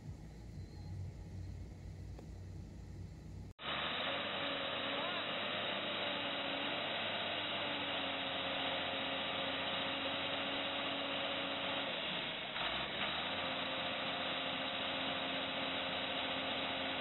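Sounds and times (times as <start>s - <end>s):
tractor diesel engine running: 3.6s - 17.0s.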